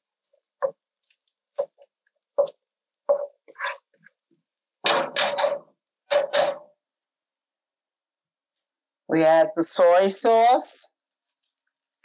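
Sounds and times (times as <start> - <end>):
spatula knocking pan: 1.6 - 3.6
spatula scraping wok: 2.4 - 4.0.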